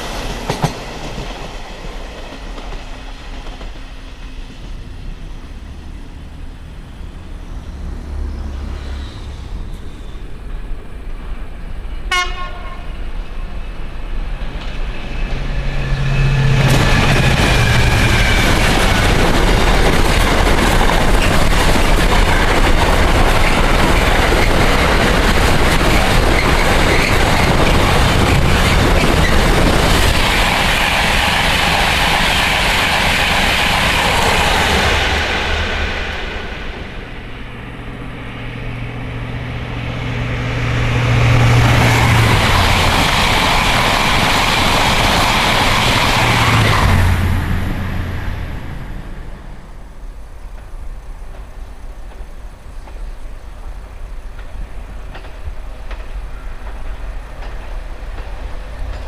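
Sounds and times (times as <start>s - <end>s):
distant train rumble: 0.0s - 59.0s
electric train rushing past: 0.0s - 59.0s
freight train rolling past: 0.0s - 59.0s.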